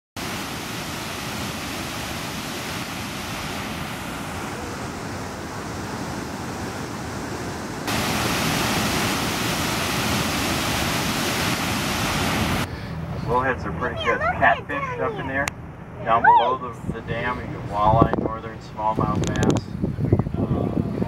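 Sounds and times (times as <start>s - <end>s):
water rushing over dam spillway: 0.2s - 12.7s.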